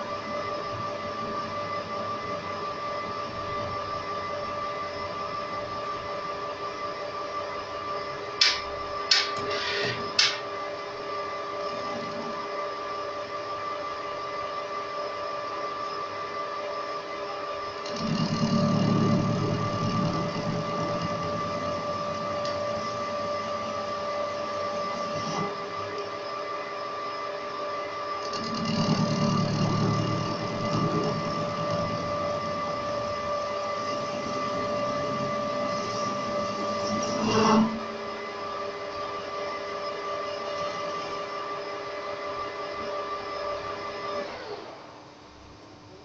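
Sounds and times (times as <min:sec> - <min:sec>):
metal lathe whine: 0:00.0 - 0:46.0
lathe tool cutting steel: 0:28.3 - 0:38.2.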